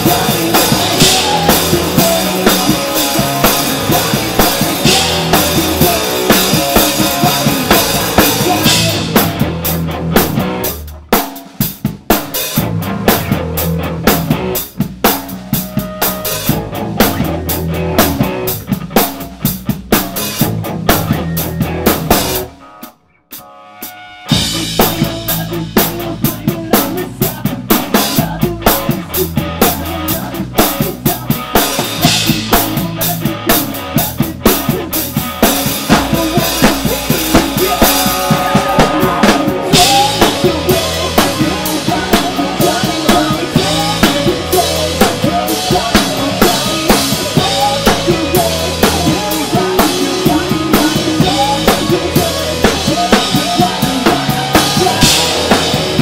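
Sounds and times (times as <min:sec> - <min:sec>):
drum kit hits: 0:00.0 - 0:13.5, 0:31.0 - 0:56.0
rock band playing: 0:00.0 - 0:56.0.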